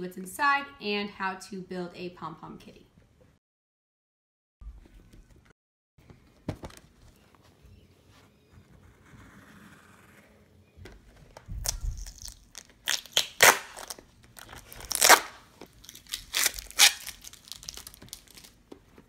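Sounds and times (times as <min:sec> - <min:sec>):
plastic wrapping tearing and crinkling: 0:11.5 - 0:18.6.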